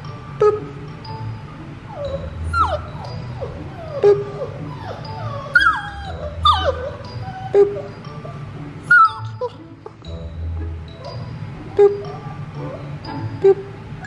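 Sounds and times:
puppy whimpering: 1.9s - 9.6s, 11.0s - 13.6s.

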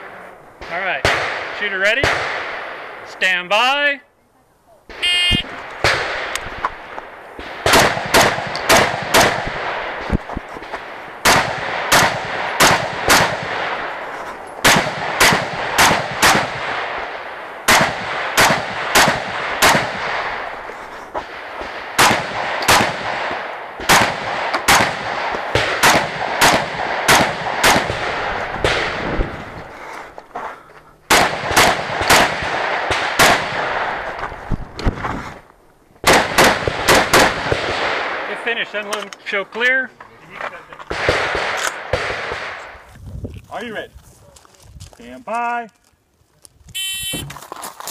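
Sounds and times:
rifle shots: 0.0s - 3.4s, 4.9s - 29.5s, 31.1s - 34.3s, 36.0s - 38.7s, 40.9s - 42.8s.

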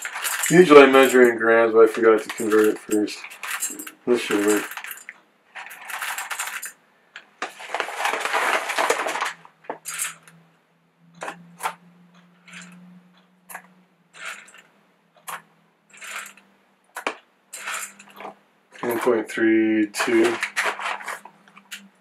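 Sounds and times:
coffee beans pouring into metal cup: 16.0s - 16.4s, 17.5s - 18.1s
coffee beans clinking into cup: 17.0s - 19.1s.

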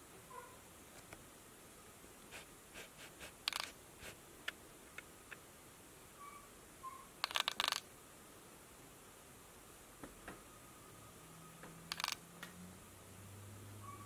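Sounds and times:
cat claws tapping on laptop: 11.9s - 12.2s.

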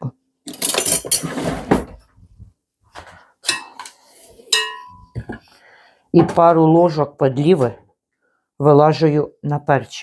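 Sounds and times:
utensils rattling: 0.5s - 1.5s.

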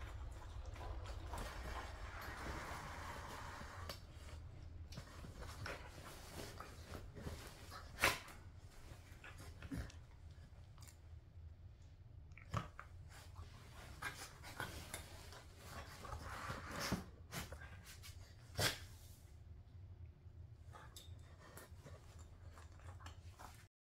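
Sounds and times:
bedding rustling: 0.0s - 10.6s, 13.0s - 18.9s.

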